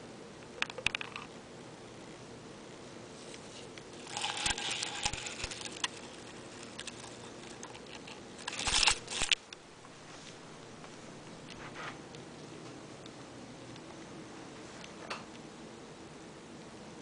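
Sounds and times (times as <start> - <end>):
artificial tree branches rustling: 3.1 - 12.1.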